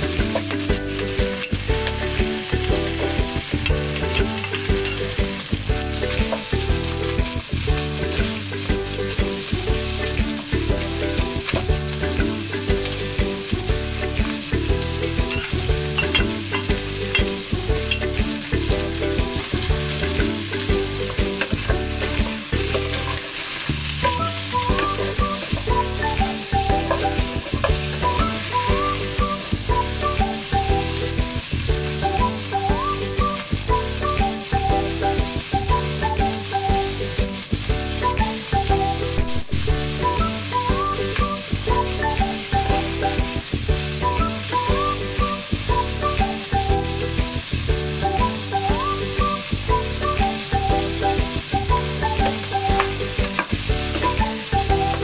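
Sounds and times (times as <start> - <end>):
meat sizzling in oil: 0.0 - 55.0
repeating tune with steady beat: 0.0 - 55.0
metal spoon stirring: 0.3 - 7.2, 15.0 - 24.2, 26.8 - 28.5.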